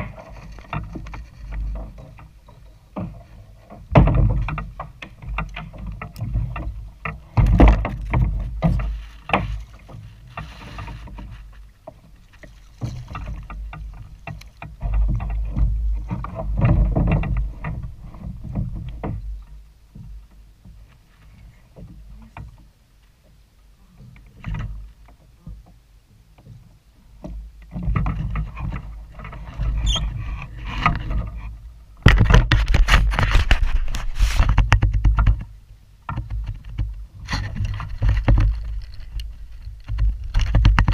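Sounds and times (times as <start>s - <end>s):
knocks and rattles: 0.0s - 19.4s, 32.0s - 35.5s, 36.1s - 40.9s
water sloshing against kayak hull: 0.0s - 40.9s.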